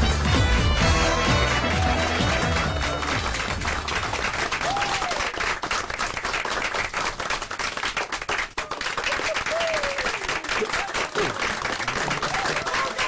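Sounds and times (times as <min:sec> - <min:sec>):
music: 0:00.0 - 0:04.5
crowd applauding: 0:00.0 - 0:13.0.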